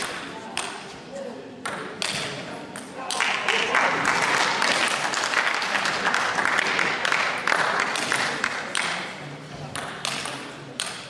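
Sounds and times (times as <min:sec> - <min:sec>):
audience applauding: 0:03.2 - 0:08.6.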